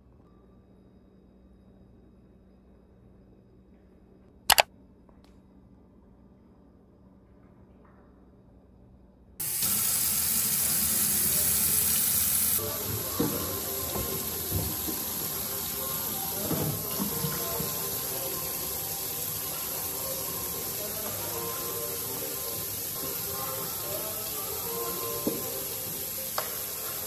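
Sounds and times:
faucet running into sink: 0:09.4 - 0:27.0.

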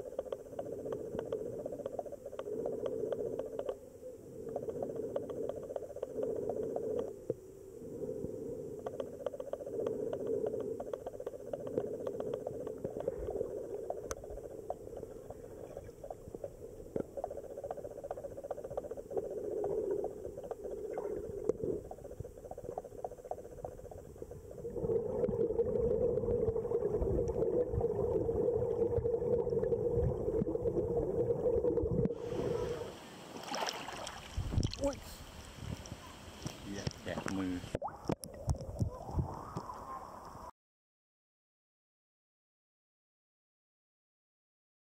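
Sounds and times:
muffled underwater stream rush: 0:00.0 - 0:40.5
small clicks: 0:08.8 - 0:13.4.

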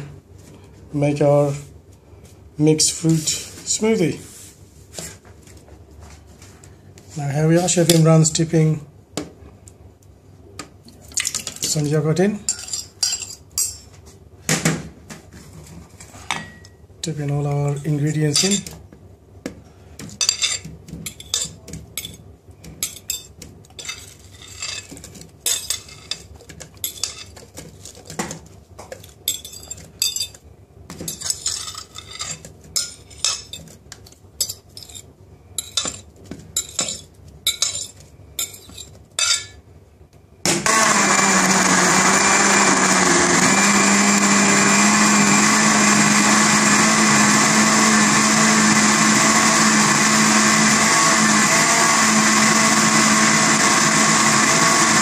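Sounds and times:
blender motor whirring: 0:40.5 - 0:55.0.

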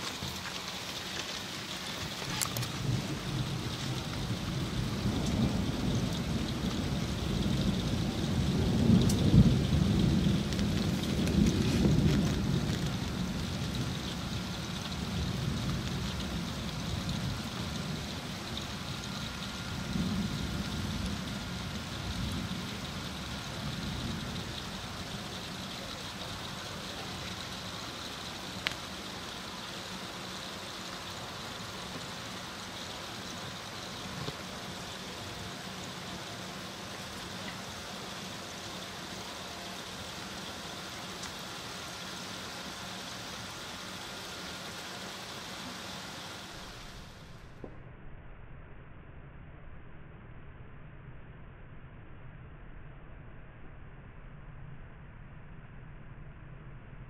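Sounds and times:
low thunder rumble: 0:00.0 - 0:43.2
rain falling: 0:00.0 - 0:47.7.

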